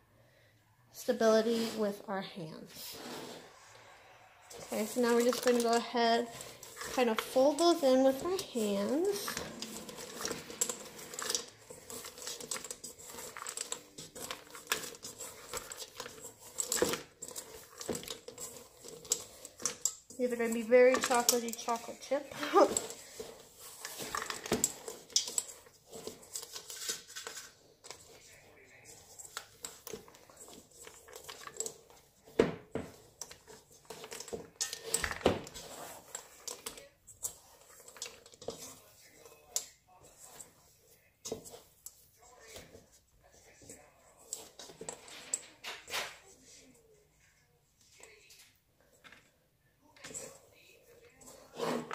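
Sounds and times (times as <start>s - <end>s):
dough clicks and rustling in bowl: 3.6s - 51.9s.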